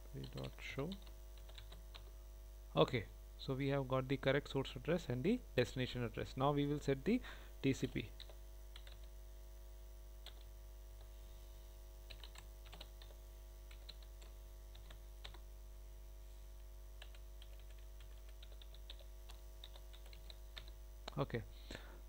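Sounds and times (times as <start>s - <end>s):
low electrical hum: 0.0s - 22.0s
keyboard typing: 0.2s - 2.1s, 8.2s - 9.1s, 10.2s - 11.1s, 12.1s - 15.4s, 17.0s - 21.2s.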